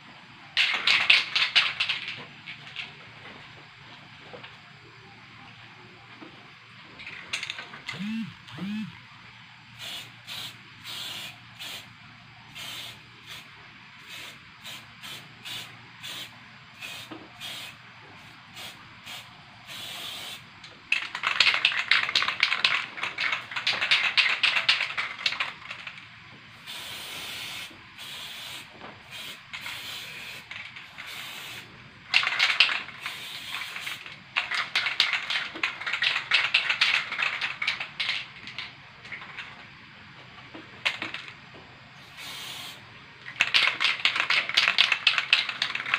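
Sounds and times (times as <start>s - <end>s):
spray paint can hissing: 9.8s - 11.9s, 12.5s - 38.3s, 42.0s - 45.9s.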